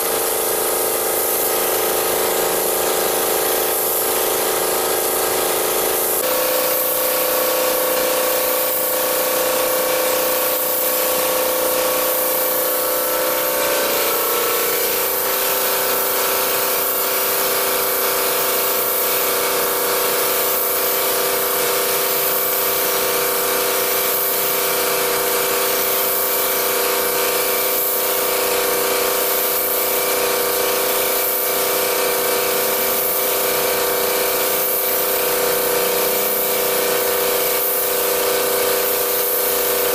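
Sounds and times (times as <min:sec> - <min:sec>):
mechanical hum: 0:00.0 - 0:21.7
spray gun hissing: 0:00.0 - 0:39.9.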